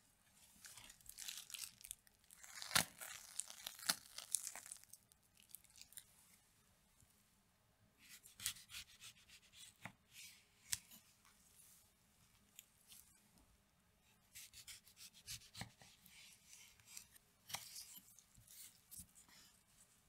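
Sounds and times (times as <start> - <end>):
waffle cone crackling: 0.7 - 6.0
knife cutting fruit on wooden board: 14.4 - 16.0.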